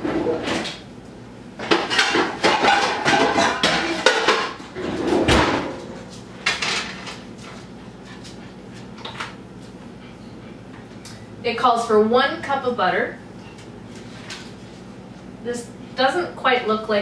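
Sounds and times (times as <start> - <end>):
pots and pans clattering: 1.6 - 7.2.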